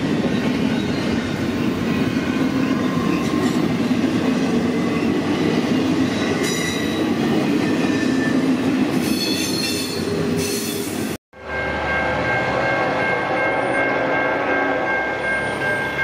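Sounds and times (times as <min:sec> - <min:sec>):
train rumbling past: 0:00.0 - 0:16.0
train wheels squealing: 0:09.0 - 0:11.0.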